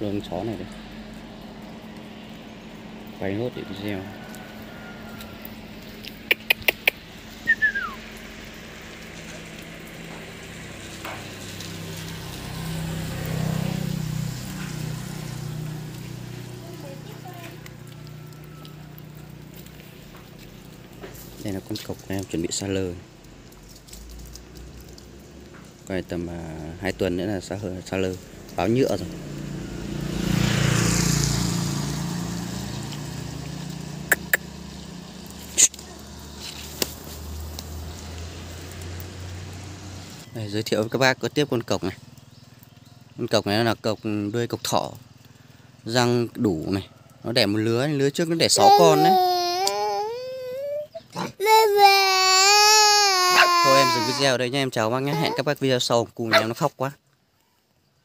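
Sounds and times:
vehicle passing on wet road: 0:00.0 - 0:49.6, 0:52.3 - 0:55.6
sharp clicks: 0:06.1 - 0:07.0.

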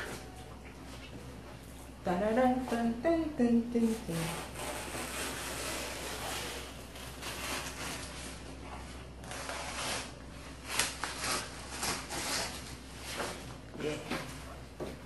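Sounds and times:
banana leaf rustling and tearing: 0:04.2 - 0:13.4.

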